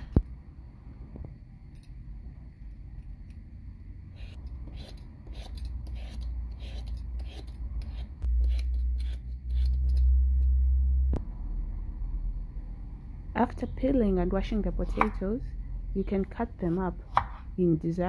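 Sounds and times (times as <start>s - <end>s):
low rumble: 10.0s - 13.5s.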